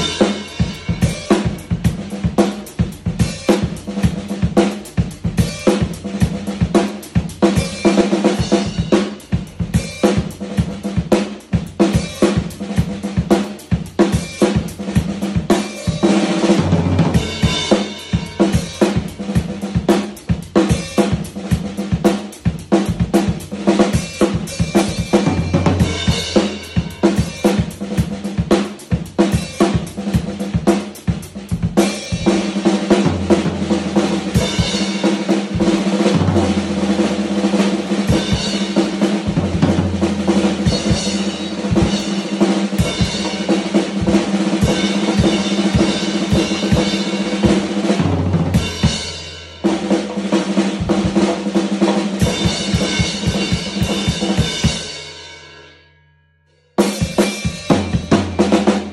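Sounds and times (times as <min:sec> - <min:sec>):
fast snare drum rolls: 0:00.0 - 0:54.8, 0:57.0 - 0:58.9
drum kit beat with bass drum: 0:00.0 - 0:55.7, 0:56.8 - 0:58.9.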